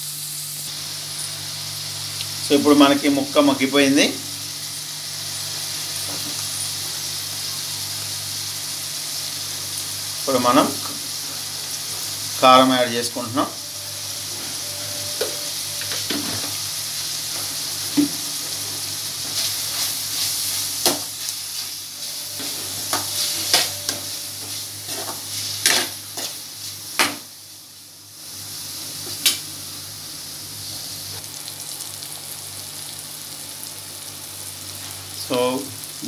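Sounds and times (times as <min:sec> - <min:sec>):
beans sizzling in oil: 0:00.0 - 0:36.0
spatula scraping a pan: 0:18.4 - 0:26.8.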